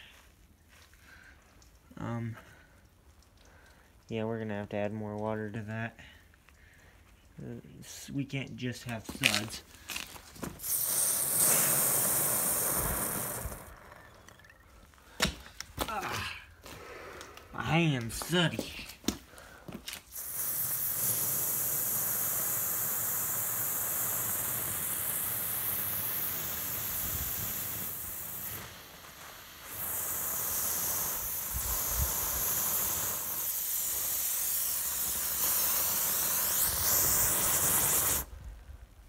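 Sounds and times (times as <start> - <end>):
hose spraying water into bucket: 7.9 - 14.3, 19.9 - 38.3.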